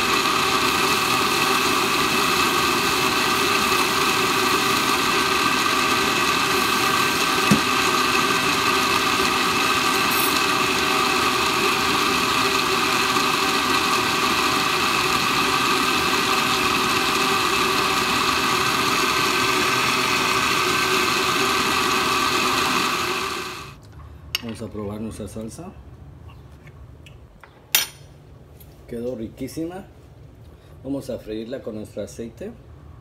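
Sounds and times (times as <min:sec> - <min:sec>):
blender motor running: 0:00.0 - 0:23.8
brief thump: 0:07.5 - 0:07.7.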